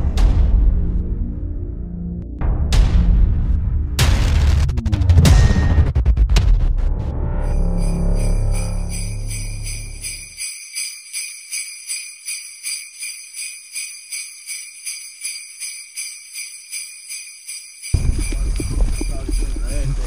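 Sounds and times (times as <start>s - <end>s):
sleigh bells jingling: 7.4s - 20.0s
low rumble: 18.0s - 20.0s.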